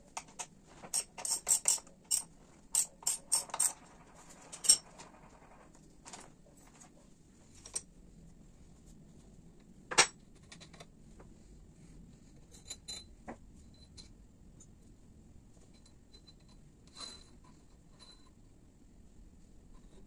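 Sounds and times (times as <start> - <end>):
metal parts clinking: 0.9 - 3.8.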